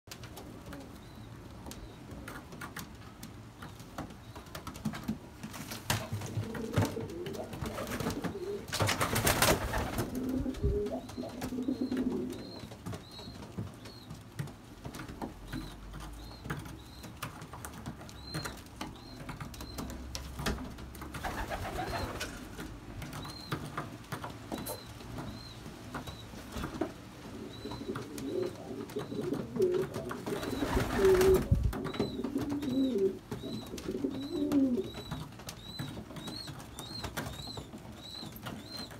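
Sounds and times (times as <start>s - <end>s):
pigeons cooing: 6.1s - 12.7s, 21.2s - 22.5s, 27.3s - 38.9s.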